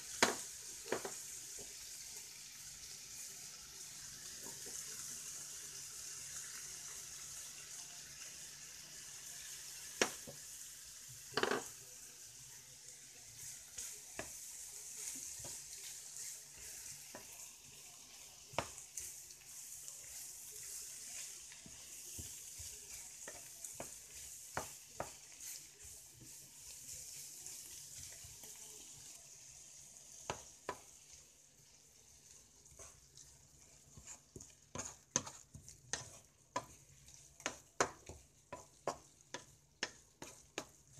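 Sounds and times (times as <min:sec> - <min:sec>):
stir-fry sizzling in frying pan: 0:00.0 - 0:40.9
wooden spatula knocking on pan: 0:00.2 - 0:01.8, 0:10.0 - 0:10.4, 0:11.4 - 0:11.7, 0:18.5 - 0:18.8, 0:21.6 - 0:25.2, 0:37.4 - 0:40.8.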